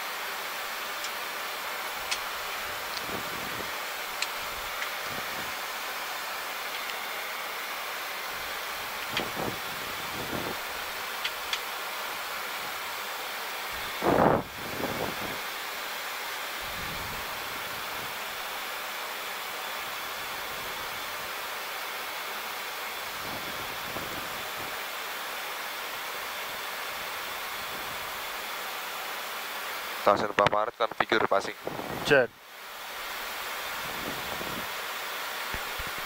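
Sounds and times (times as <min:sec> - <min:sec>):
rushing airflow in cockpit: 0:00.0 - 0:19.0, 0:22.6 - 0:25.0, 0:31.0 - 0:36.0.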